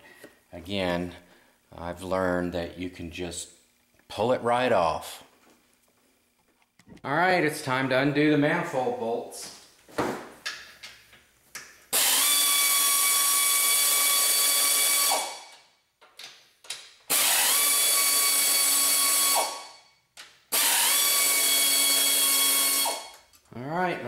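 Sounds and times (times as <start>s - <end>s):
power tool whining: 11.9s - 15.6s, 17.1s - 19.8s, 20.5s - 23.3s.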